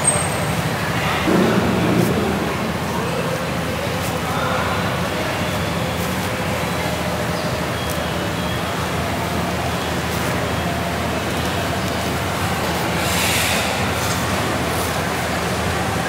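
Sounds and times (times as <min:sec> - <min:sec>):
busy market: 0:00.0 - 0:16.0
road traffic: 0:00.0 - 0:16.0.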